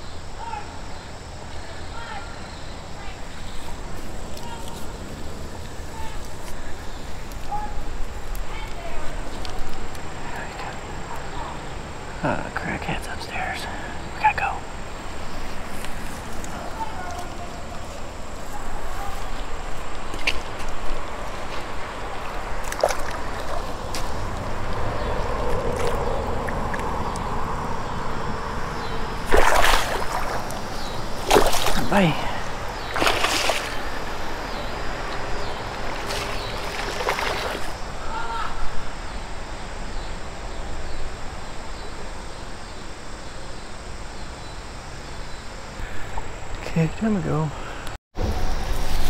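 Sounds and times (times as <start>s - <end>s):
continuous hiss: 0.0s - 24.8s, 26.0s - 49.0s
insects chirping: 0.0s - 49.0s
creek water running: 1.5s - 38.0s
fish thrashing splash: 29.2s - 31.9s, 32.9s - 34.0s, 36.0s - 37.7s.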